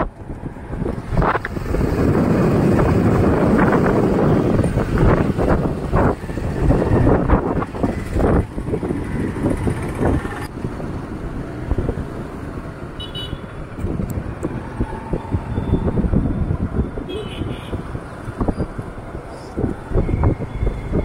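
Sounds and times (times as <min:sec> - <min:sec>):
gusty low rumble: 0:00.0 - 0:12.1
road traffic: 0:00.0 - 0:21.0.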